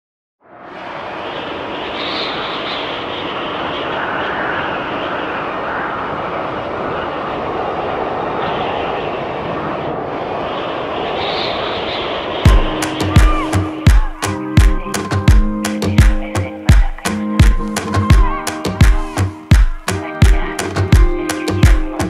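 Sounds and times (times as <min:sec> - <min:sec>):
steady rushing noise: 0:00.4 - 0:22.0.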